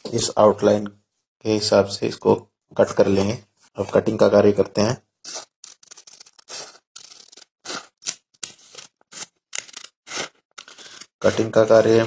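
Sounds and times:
scissors snipping paper: 5.3 - 11.6.

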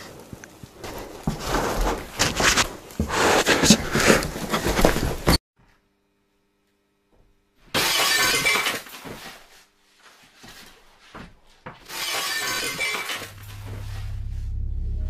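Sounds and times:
low rumbling drone: 13.3 - 15.0.

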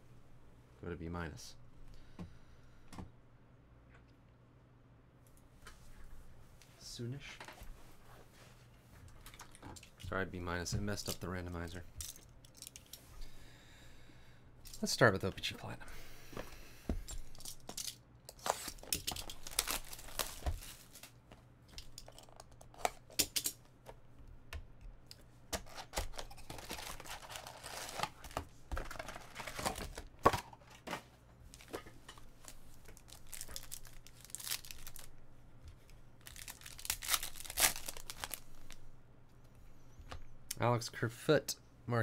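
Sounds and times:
foil packs crinkling and tearing: 18.4 - 21.2, 25.6 - 30.3, 32.4 - 35.2, 36.2 - 38.8.

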